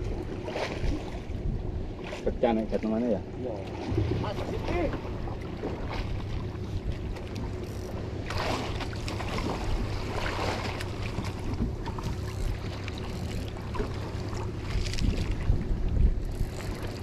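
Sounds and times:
steady low rumble: 0.0 - 17.0
water washing against hull: 0.0 - 17.0
wind on microphone: 9.3 - 17.0.

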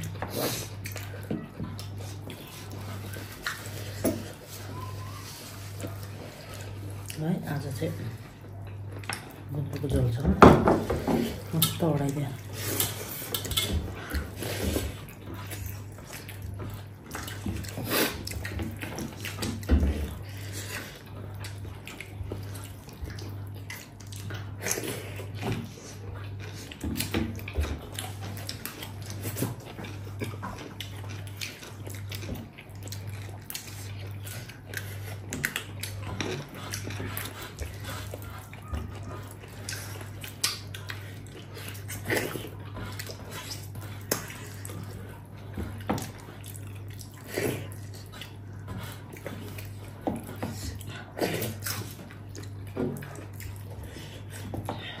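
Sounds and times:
steady low hum: 0.0 - 55.0
wet chewing and smacking: 0.0 - 55.0.

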